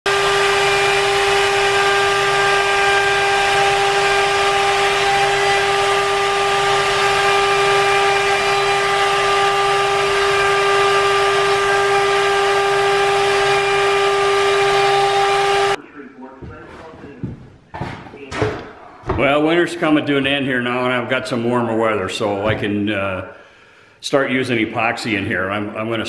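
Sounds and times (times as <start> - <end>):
router spindle whine: 0.1 - 15.8.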